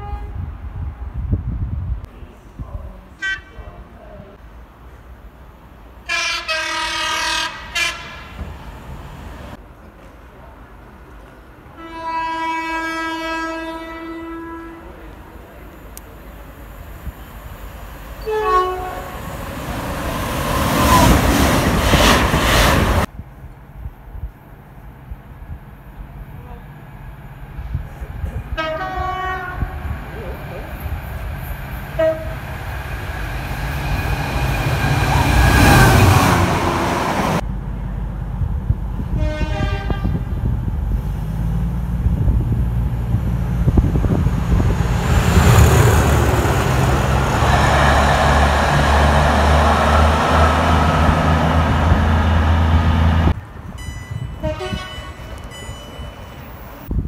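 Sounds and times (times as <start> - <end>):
train horn blasts: 0.0 - 0.4, 6.1 - 8.4, 11.8 - 15.0, 18.2 - 19.2, 28.5 - 29.8, 32.0 - 32.5, 39.1 - 40.4, 53.8 - 55.6
trains passing at speed: 0.0 - 57.0.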